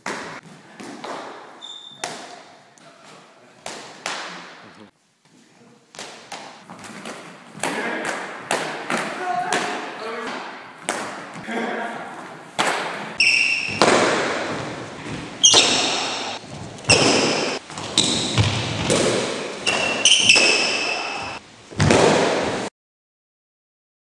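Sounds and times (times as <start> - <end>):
sticks striking in sparring: 12.6 - 14.8, 15.4 - 22.7.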